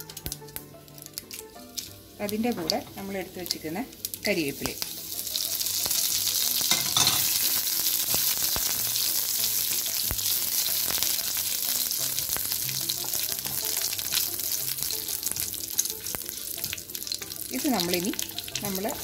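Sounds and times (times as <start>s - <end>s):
spices sizzling in hot oil: 0.0s - 19.0s.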